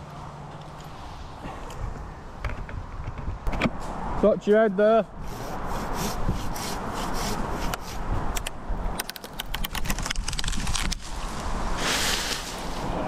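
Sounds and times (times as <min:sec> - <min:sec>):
hand saw rasping through wood: 0:05.3 - 0:08.0
branch cracking: 0:09.0 - 0:11.4
rustling leaves: 0:09.0 - 0:13.0.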